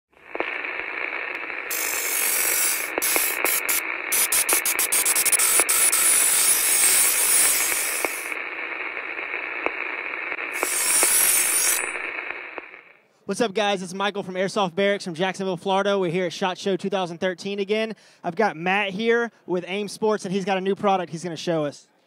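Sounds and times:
radio static: 0.1s - 13.0s
bursts of hiss: 0.2s - 12.9s
sharp clicks: 1.3s - 8.4s.

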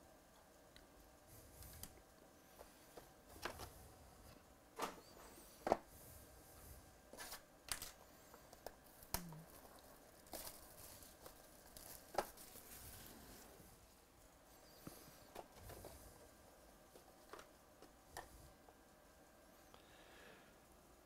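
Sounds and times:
plastic wrap crinkling and tearing: 8.6s - 13.4s.

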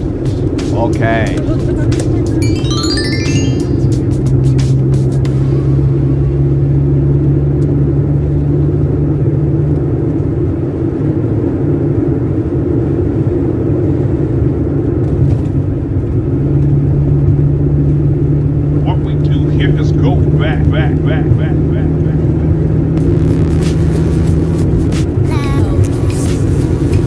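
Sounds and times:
car engine and tyre rumble: 6.4s - 21.4s, 22.0s - 27.0s.

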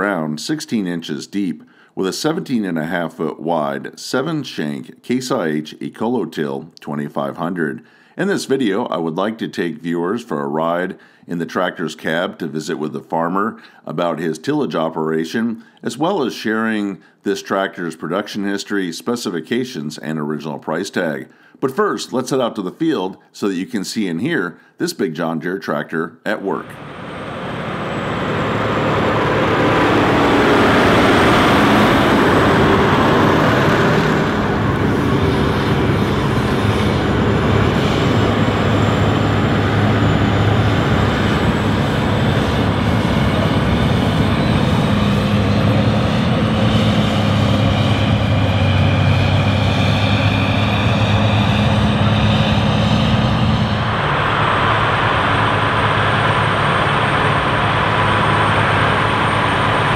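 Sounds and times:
tractor diesel engine under load: 26.6s - 59.9s.

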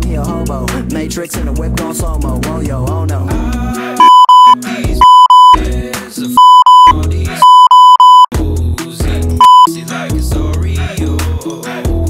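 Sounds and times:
censor beeps: 4.0s - 5.6s, 6.4s - 8.3s, 9.4s - 9.7s.

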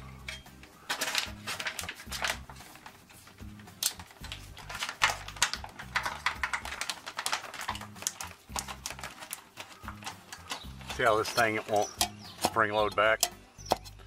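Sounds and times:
background music with bass: 0.0s - 6.9s, 7.7s - 14.0s
screwdriver turning hose clamp: 7.7s - 14.0s
metallic clicks and taps: 9.6s - 14.0s.

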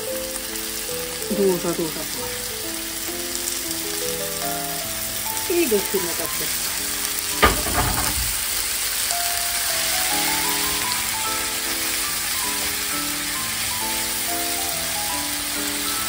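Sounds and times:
background music: 0.0s - 16.0s
leeks sizzling in frying pan: 0.0s - 16.0s
thump: 7.4s - 8.6s.

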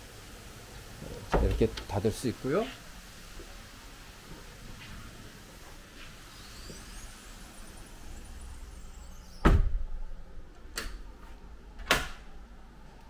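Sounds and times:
sliding door banging shut: 1.2s - 1.9s, 9.4s - 10.0s.

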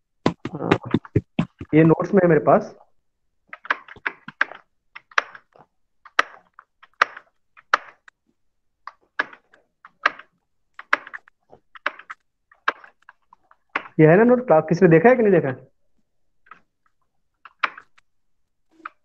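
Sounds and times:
keyboard keys clicking: 3.5s - 8.1s, 8.9s - 14.0s, 17.4s - 18.0s.

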